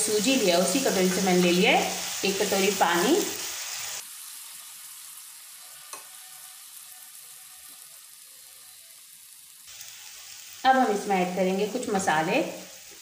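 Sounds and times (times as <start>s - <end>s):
food sizzling in a pan: 0.0s - 13.0s.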